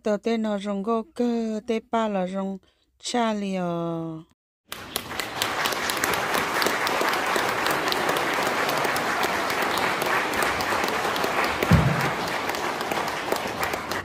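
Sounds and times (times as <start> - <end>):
crowd applauding: 4.7 - 14.0
low thump: 11.7 - 12.2.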